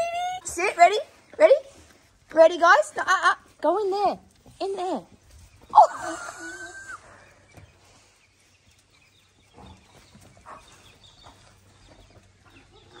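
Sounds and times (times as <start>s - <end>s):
dogs pattering on concrete: 7.5s - 13.0s.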